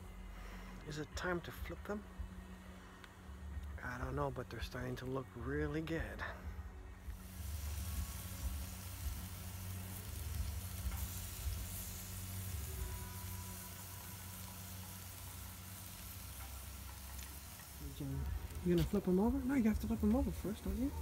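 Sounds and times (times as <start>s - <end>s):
low rumble: 0.0s - 21.0s
steaks sizzling on grill: 7.1s - 21.0s.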